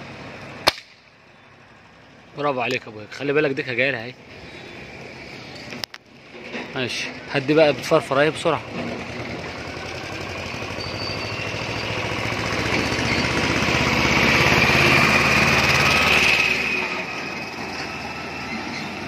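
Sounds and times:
vehicle engine passing by: 4.2 - 19.0.

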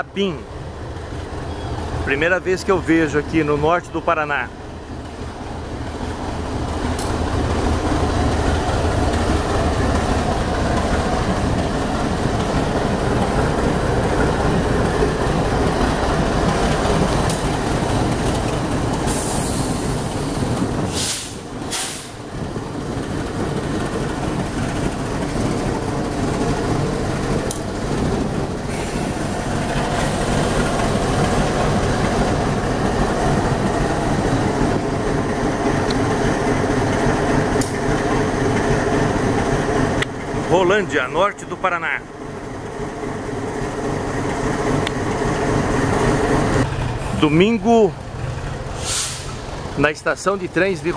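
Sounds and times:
locomotive engine droning: 0.0 - 50.9
wheel and rail noise: 0.0 - 50.9
short hiss: 48.8 - 49.4.

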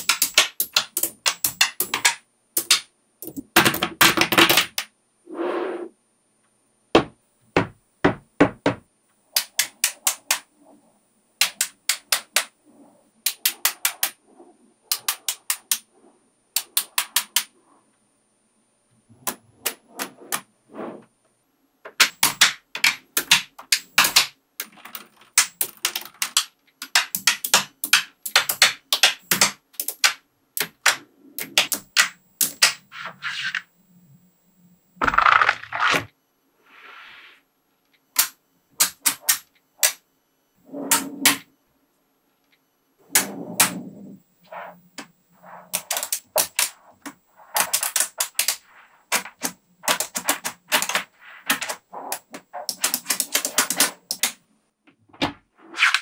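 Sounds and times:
magnetic metal balls clicking: 0.0 - 4.9, 9.3 - 17.7, 21.9 - 33.7, 37.9 - 40.1, 42.4 - 54.4.

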